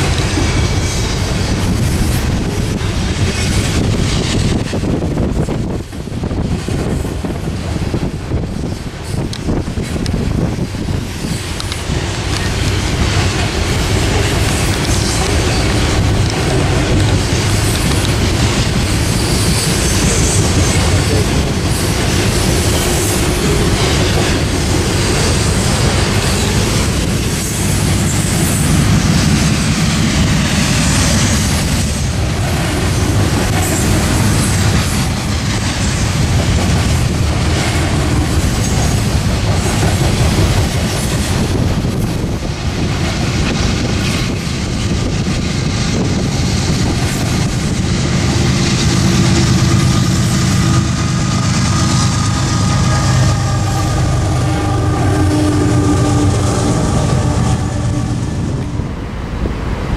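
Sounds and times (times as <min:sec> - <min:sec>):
clickety-clack over rail joints: 0:00.0 - 0:53.5
steel wheels rumbling on rail: 0:00.0 - 0:59.9
high wheel squeal: 0:49.2 - 0:58.5.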